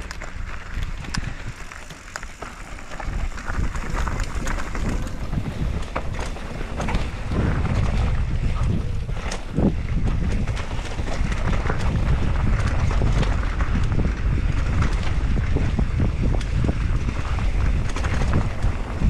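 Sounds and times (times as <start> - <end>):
bike rattling clicks and knocks: 0.0 - 19.0
bike tyres rumbling on dirt: 0.0 - 19.0
wind rushing over microphone: 0.0 - 19.0.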